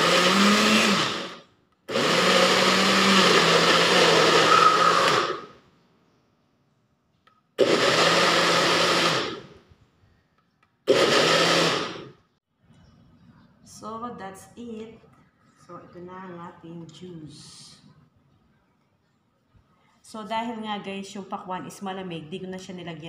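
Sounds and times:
personal blender chopping fruit: 0.0 - 5.5, 7.6 - 9.5, 10.9 - 12.1.

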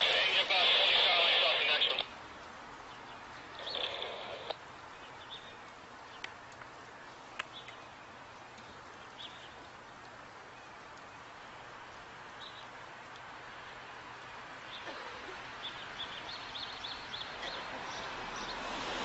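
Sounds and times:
bird chirps: 2.9 - 6.2
sharp clicks: 3.6 - 4.6.

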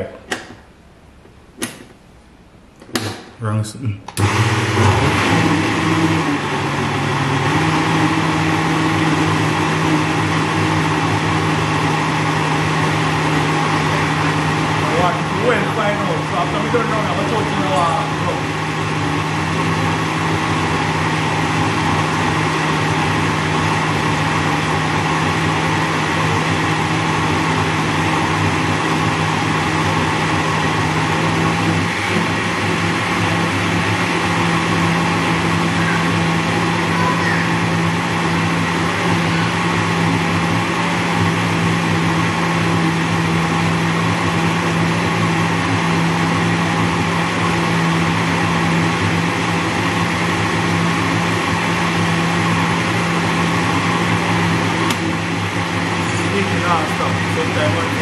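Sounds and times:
blender motor whine: 4.2 - 58.0.

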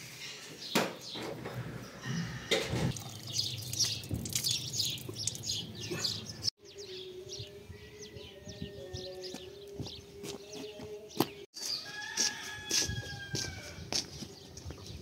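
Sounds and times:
small birds chirping: 3.0 - 11.9.

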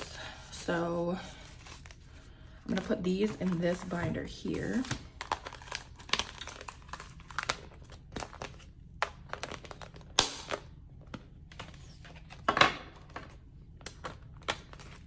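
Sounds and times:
plastic bags crinkling: 2.6 - 10.2.

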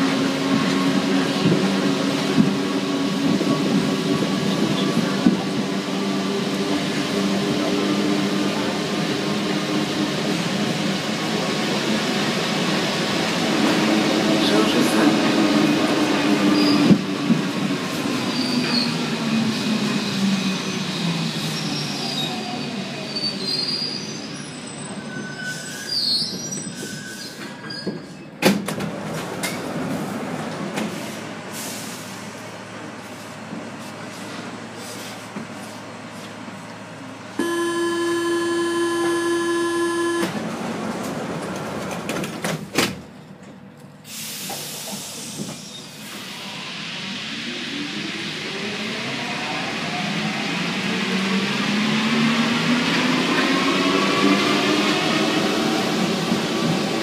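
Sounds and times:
train running noise: 0.0 - 20.6, 26.3 - 57.0
electric hum: 37.4 - 40.3
train motor whine: 37.4 - 40.6.

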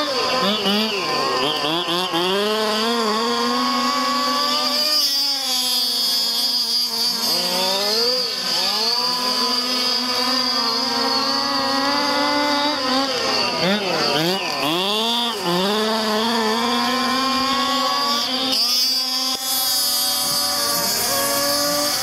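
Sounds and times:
small two-stroke engine revving: 0.0 - 22.0.

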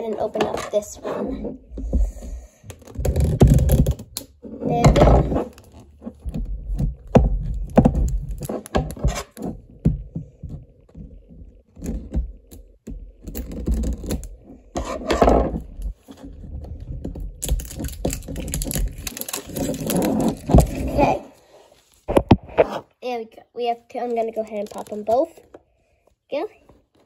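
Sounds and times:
scissors scraping plastic: 13.2 - 21.4, 24.2 - 25.6
scissors snipping plastic: 17.4 - 21.1.

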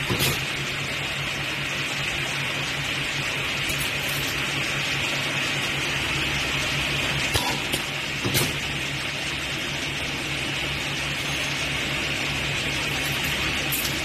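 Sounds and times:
welding machine humming: 0.0 - 14.0.

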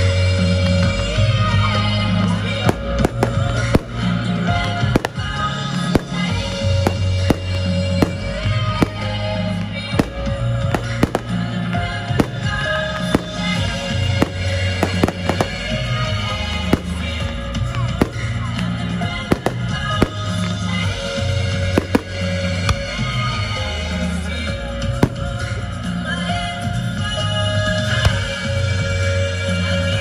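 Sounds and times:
music with long held notes: 0.0 - 30.0
firework shells bursting: 14.2 - 15.8.

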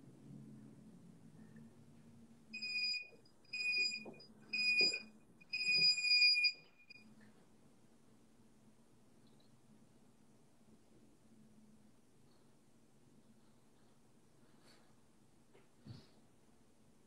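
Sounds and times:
timer beeping: 2.6 - 7.0.

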